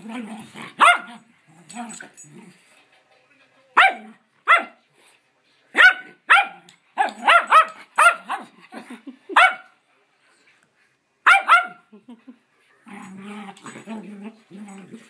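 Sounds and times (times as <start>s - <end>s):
dog barking: 0.8s - 1.1s, 3.8s - 4.8s, 5.8s - 8.4s, 9.4s - 9.8s, 11.2s - 11.8s.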